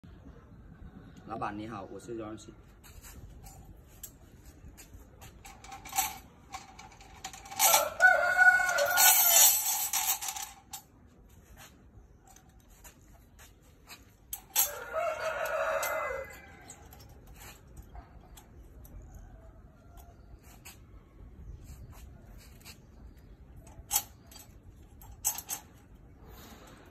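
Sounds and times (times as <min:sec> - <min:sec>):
tie wire clicking on rebar: 0:04.8 - 0:10.9, 0:13.9 - 0:19.1, 0:23.5 - 0:26.0
rooster crowing: 0:07.6 - 0:09.6, 0:14.6 - 0:17.0.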